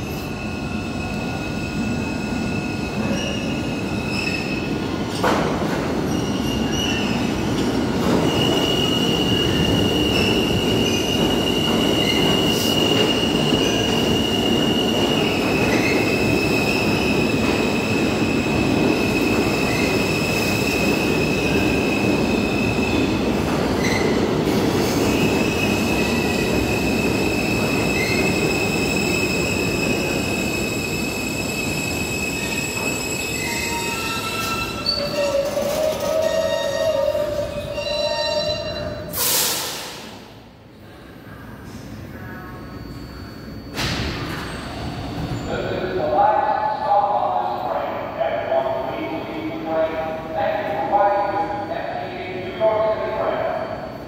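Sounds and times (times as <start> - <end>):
train wheels rumbling on rail: 0.0 - 38.0.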